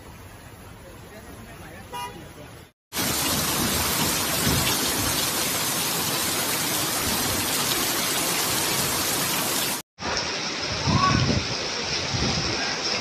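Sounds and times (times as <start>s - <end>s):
floodwater running: 2.9s - 13.0s
heavy rain on flooded street: 2.9s - 13.0s.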